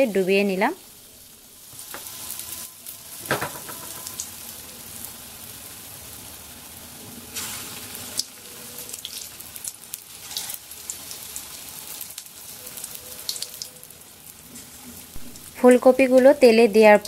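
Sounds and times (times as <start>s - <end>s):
battered food deep-frying in oil: 0.0s - 17.0s.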